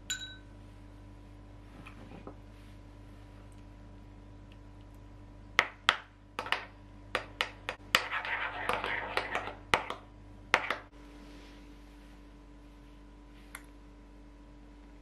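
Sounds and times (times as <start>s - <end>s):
spoon clinking against glass bowl: 0.1s - 0.5s.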